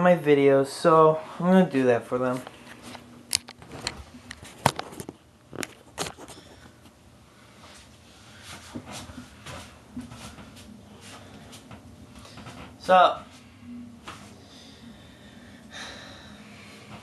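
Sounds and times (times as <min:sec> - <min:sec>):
person moving about: 0:02.1 - 0:14.4.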